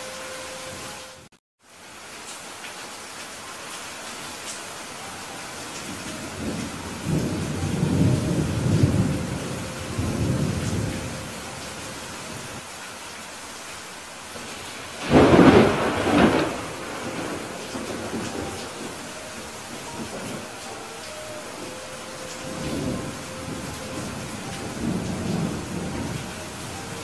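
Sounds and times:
steady rain: 0.0 - 27.0
thunder rumbling: 5.9 - 12.6, 14.4 - 27.0
sharp thunderclap: 15.0 - 19.0.

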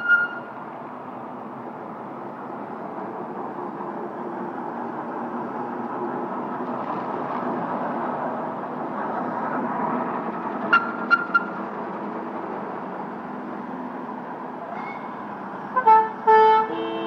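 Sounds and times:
fire engine rumbling past: 0.0 - 16.9
loud pitched horn notes: 15.8 - 17.0.

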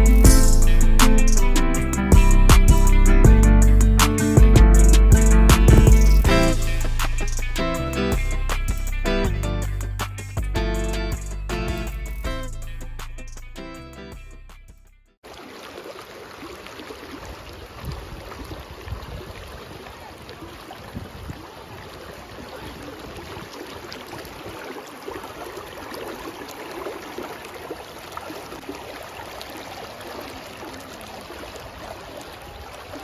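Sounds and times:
person wading through water: 15.2 - 33.0
river water rushing over stones: 15.2 - 33.0.

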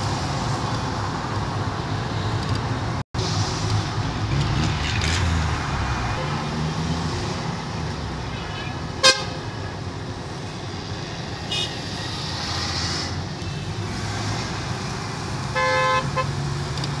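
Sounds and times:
highway traffic hum: 0.0 - 17.0
car horn honking: 8.3 - 9.6, 11.5 - 11.8, 15.5 - 16.3.

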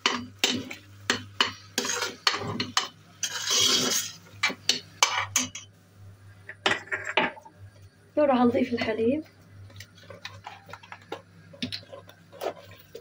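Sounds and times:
metal spoon scraping a pot: 0.0 - 5.6.

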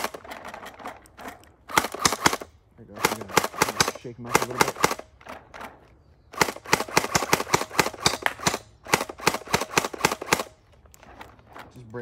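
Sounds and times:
gel blaster firing rapid pops: 3.0 - 5.0, 6.4 - 10.5.

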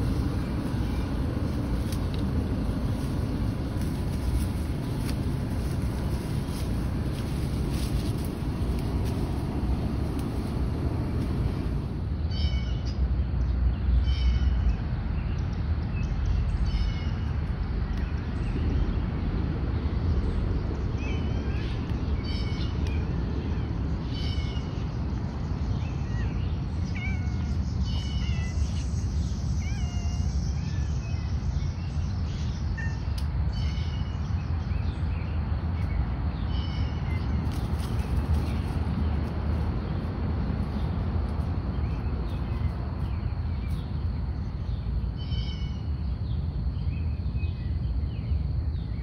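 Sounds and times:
steady low rumble: 0.0 - 49.0
cats meowing: 26.1 - 28.9, 29.5 - 30.9.

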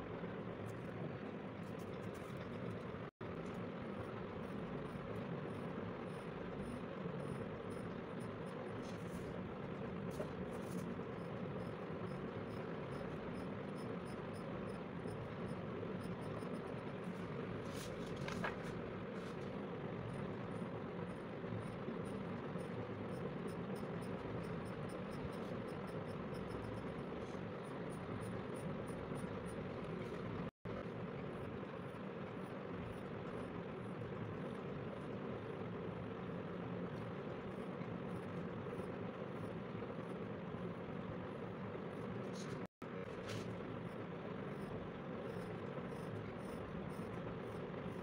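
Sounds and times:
steady background noise: 0.0 - 48.0
pencil scratching on paper: 10.0 - 11.7.

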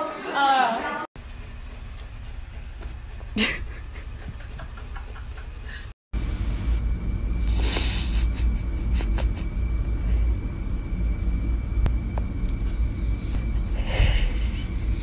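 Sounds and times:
steady low rumble: 1.2 - 15.0.

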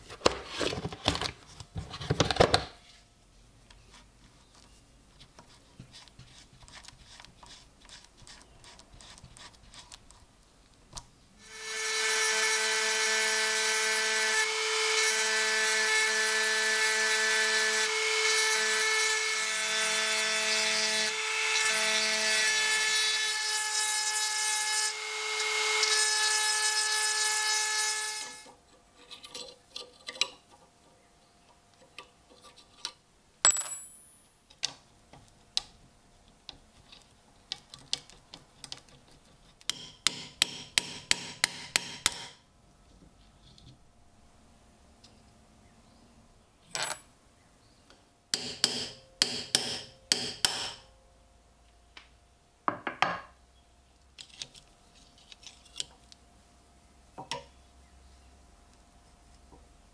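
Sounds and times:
ringing metal clink: 33.5 - 34.2.

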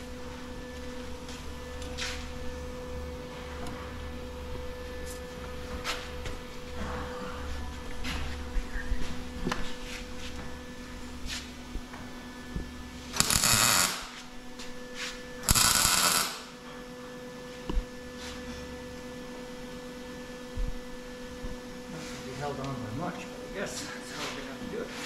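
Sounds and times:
steady electrical hum: 0.0 - 25.0
welder arc crackling: 12.9 - 14.8, 15.4 - 16.6.

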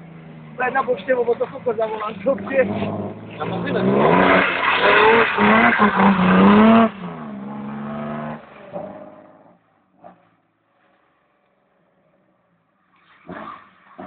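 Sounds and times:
car engine revving: 0.0 - 10.4.

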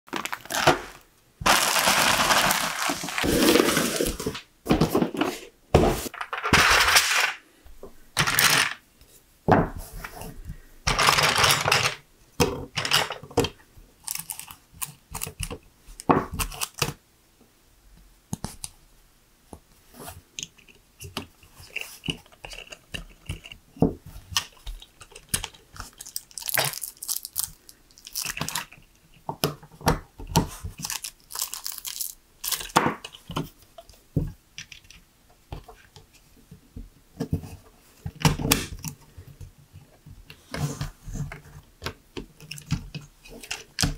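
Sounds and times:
plastic pieces rattling: 0.1 - 4.4, 6.1 - 7.4, 8.2 - 8.8, 10.9 - 12.0, 24.4 - 28.8, 30.8 - 33.2
plastic pieces clicking together: 8.2 - 8.8, 10.9 - 12.0, 24.3 - 28.8, 30.8 - 33.4.

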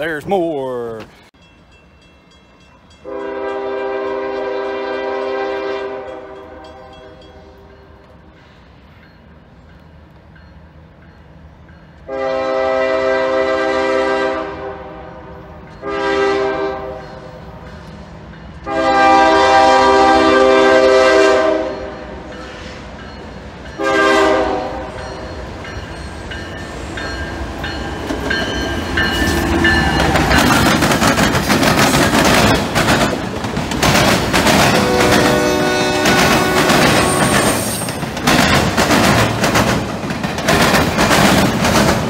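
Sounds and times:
train rumbling: 0.0 - 42.0
locomotive air horn blasts: 3.0 - 7.6, 12.1 - 17.2, 18.6 - 22.0, 23.8 - 25.0, 34.8 - 37.7
wheels clattering over rail crossing: 24.8 - 42.0.

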